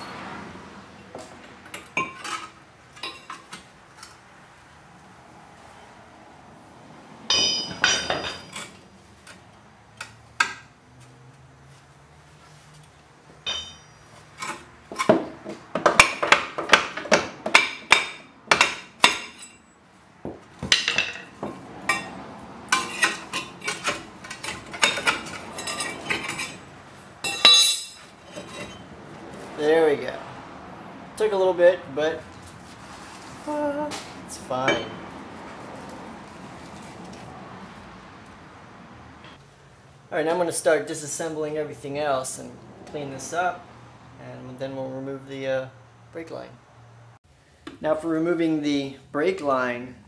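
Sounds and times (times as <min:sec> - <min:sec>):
hammer clanking on metal rotor: 0:07.3 - 0:08.8, 0:13.5 - 0:15.2, 0:15.8 - 0:19.6, 0:22.7 - 0:26.6, 0:27.2 - 0:28.8.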